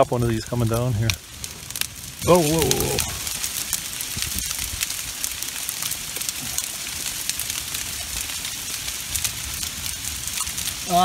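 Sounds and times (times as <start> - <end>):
hailstones ticking: 0.0 - 11.0
heavy rain hissing: 0.0 - 11.0.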